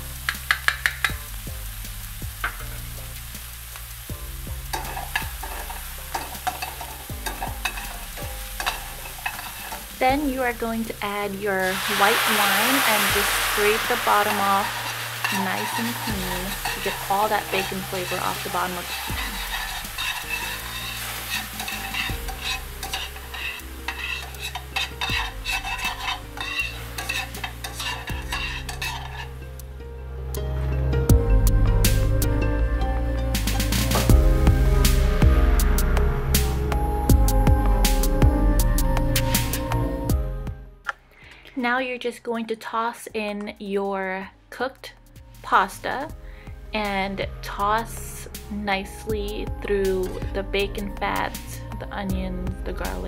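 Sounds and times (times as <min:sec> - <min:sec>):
onion and garlic sizzling in pan: 0:00.0 - 0:29.7
utensil scraping against pan: 0:04.7 - 0:10.0, 0:11.6 - 0:29.4.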